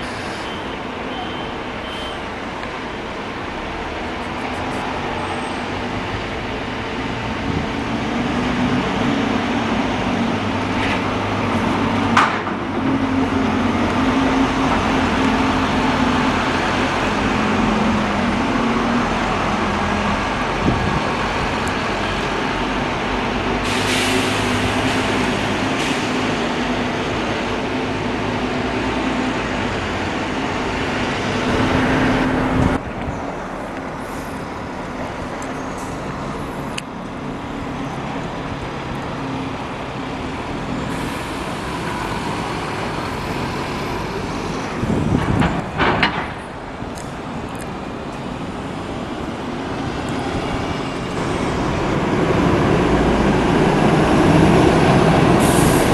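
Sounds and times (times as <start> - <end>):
air brakes hissing: 0.0 - 0.7, 23.5 - 26.4, 40.8 - 42.8, 55.2 - 55.9
buses pulling away: 0.0 - 55.9
distant bus engine hum: 0.0 - 55.9.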